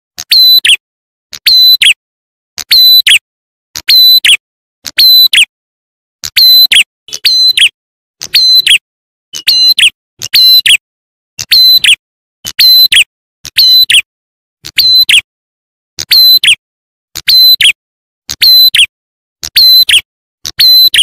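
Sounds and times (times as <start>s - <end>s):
sharp high bird chirping: 8.3s - 8.8s.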